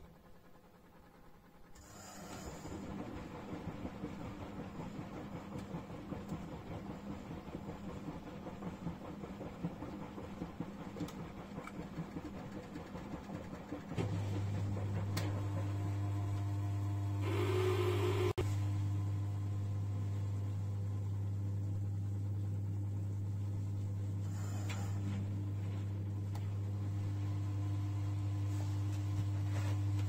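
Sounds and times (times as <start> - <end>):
washing machine drum sloshing: 2.6 - 16.4
low steady hum: 14.0 - 30.0.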